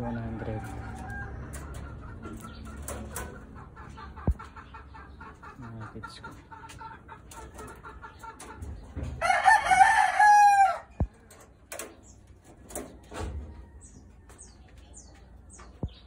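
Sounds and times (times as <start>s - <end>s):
rooster crowing: 9.2s - 11.0s.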